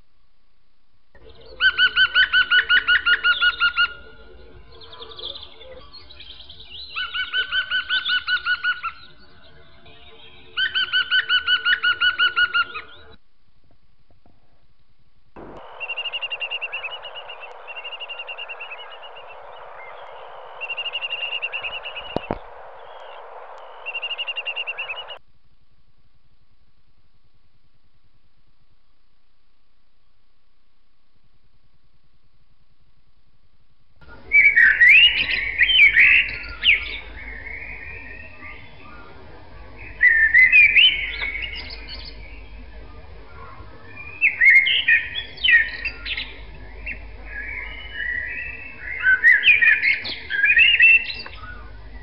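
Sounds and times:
bird chirping: 0:01.2 - 0:13.2, 0:15.4 - 0:25.2, 0:34.2 - 0:42.8, 0:43.8 - 0:52.0
steady hiss: 0:14.3 - 0:25.2
bird trilling: 0:15.4 - 0:25.2.

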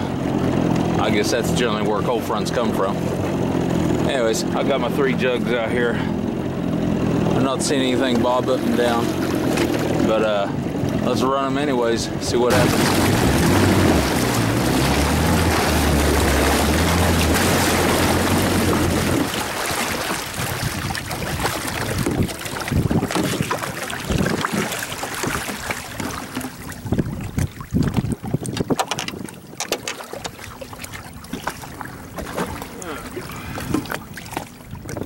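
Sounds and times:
jet ski engine running: 0:00.0 - 0:35.0
water noise: 0:00.0 - 0:35.0
wind buffeting microphone: 0:12.5 - 0:32.6, 0:33.3 - 0:35.0.

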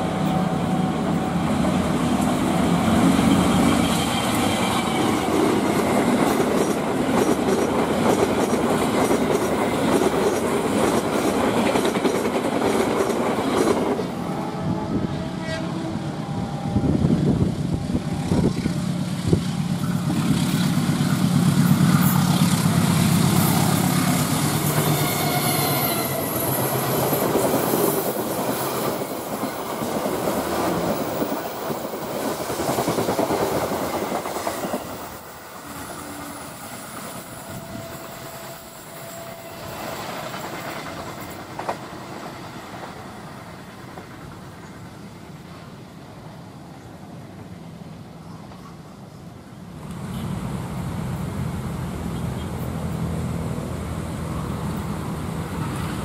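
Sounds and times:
diesel locomotive running: 0:00.0 - 0:46.4
train horn: 0:14.1 - 0:19.8, 0:23.4 - 0:26.8, 0:37.2 - 0:40.2.

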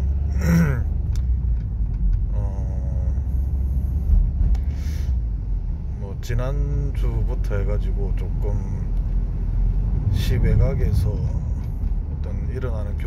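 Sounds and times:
car engine rumble: 0:00.0 - 0:13.0
road noise: 0:00.0 - 0:13.0.

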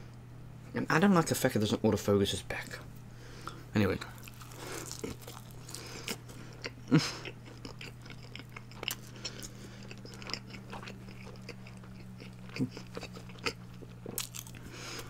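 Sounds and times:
low electrical hum: 0:00.0 - 0:15.0
chewing food: 0:04.1 - 0:15.0.

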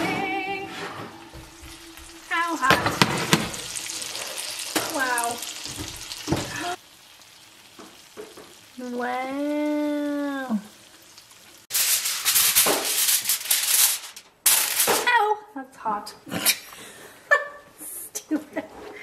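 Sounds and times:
roast sizzling in juices: 0:01.2 - 0:14.9
hot dish clunking on cooktop: 0:02.7 - 0:03.8.

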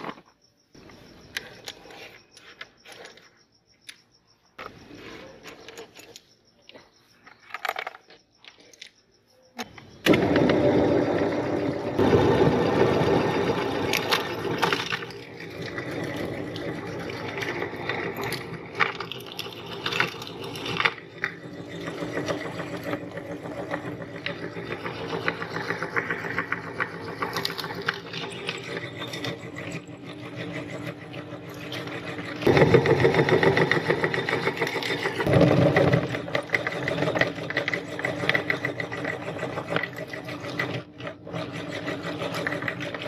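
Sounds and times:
electric meat grinder motor humming: 0:10.1 - 0:43.0.

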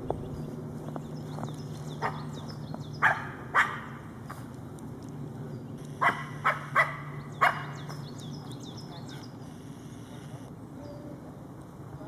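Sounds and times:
small dog barking: 0:02.0 - 0:02.3, 0:03.0 - 0:04.0, 0:06.0 - 0:07.8.

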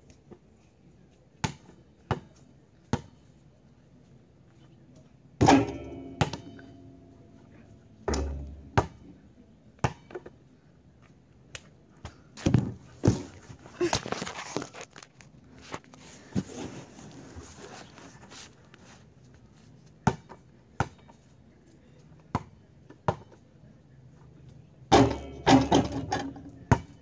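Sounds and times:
basketball hitting hoop rim: 0:05.4 - 0:06.6, 0:08.1 - 0:09.0, 0:24.9 - 0:26.8.

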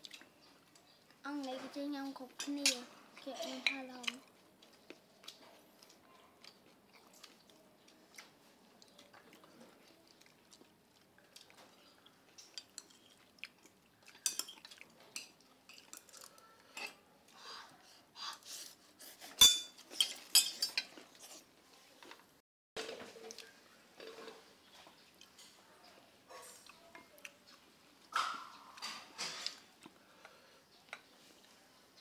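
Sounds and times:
chewing: 0:03.1 - 0:17.4, 0:23.2 - 0:32.0
utensils clinking on ceramic bowls: 0:14.2 - 0:17.0, 0:19.4 - 0:21.0.

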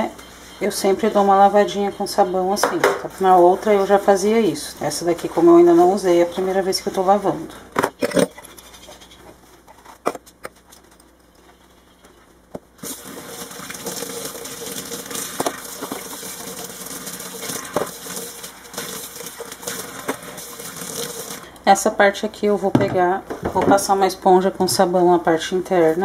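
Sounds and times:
tap water running into sink: 0:12.8 - 0:21.5.

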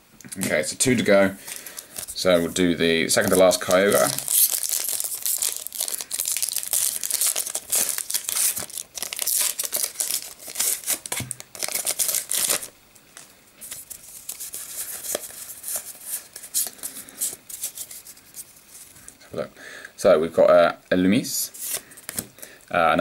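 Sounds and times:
foil wrapper tearing and crinkling: 0:03.2 - 0:12.7.

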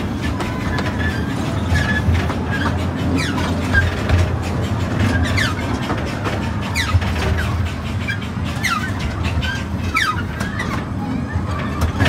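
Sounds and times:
train cars rumbling and clacking: 0:00.0 - 0:12.0
high wheel squeals: 0:00.3 - 0:04.1.

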